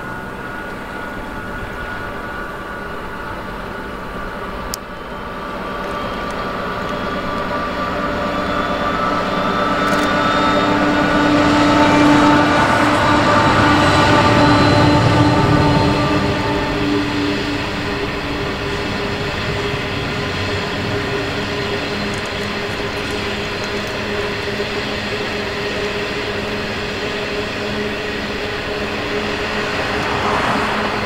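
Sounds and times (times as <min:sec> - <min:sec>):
locomotive engines humming: 0:00.0 - 0:31.0.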